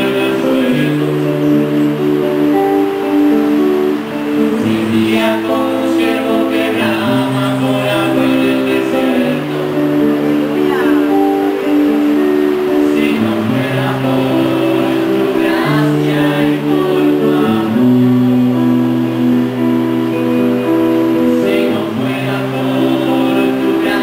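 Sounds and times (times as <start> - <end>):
group singing worship song: 0.0 - 24.0
strummed acoustic guitar: 0.0 - 24.0.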